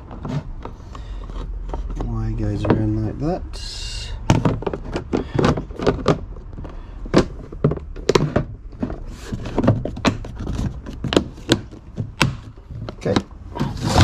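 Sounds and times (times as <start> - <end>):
gear knocking and clunking: 4.1 - 14.0.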